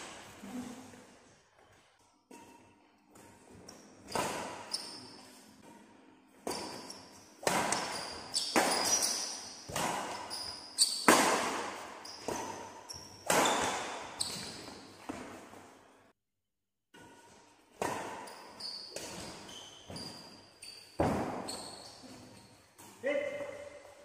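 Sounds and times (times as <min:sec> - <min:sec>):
rackets hitting shuttlecock: 0:06.4 - 0:15.4.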